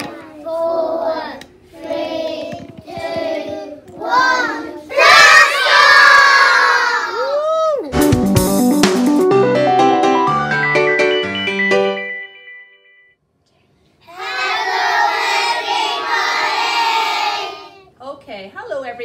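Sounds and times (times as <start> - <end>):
children singing together: 0.0 - 7.1, 14.1 - 17.8
children shouting together: 4.1 - 7.4.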